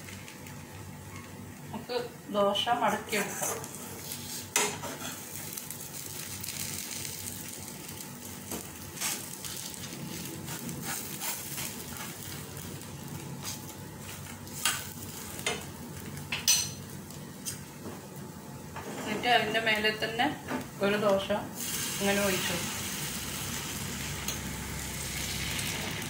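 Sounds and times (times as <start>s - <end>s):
batter sizzling in a pan: 3.2s - 17.2s, 21.5s - 26.0s.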